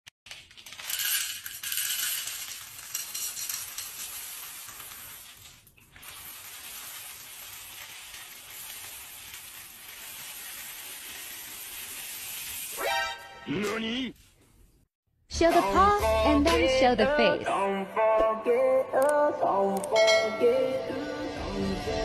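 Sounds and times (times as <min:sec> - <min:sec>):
kibble pouring into a bowl: 0:00.3 - 0:12.7
pellets spilling on wooden floor: 0:00.3 - 0:12.8.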